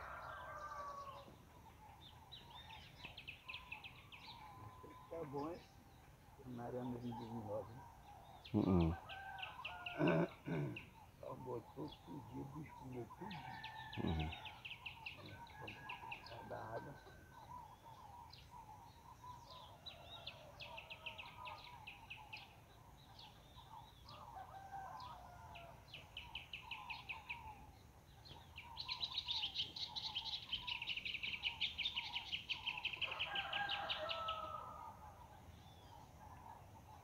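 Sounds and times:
soft bird chirps: 0.0 - 37.0.

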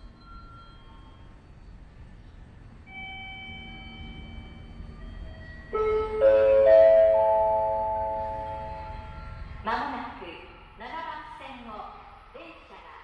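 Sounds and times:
soft chime tone: 0.0 - 1.9, 2.9 - 10.2
ringing bell-like notes: 2.9 - 10.2.

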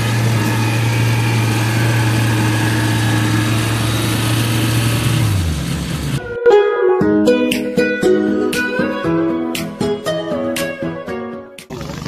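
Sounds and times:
harvester diesel engine droning: 0.0 - 6.5.

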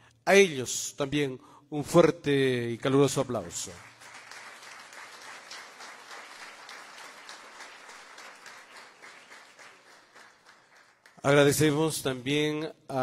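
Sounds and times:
audience applauding: 3.8 - 11.6.

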